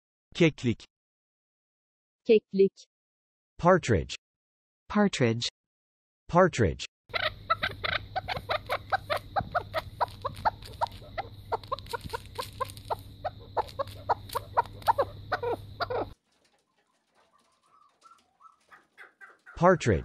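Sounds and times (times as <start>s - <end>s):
partridge clucking calls: 7.1s - 20.0s.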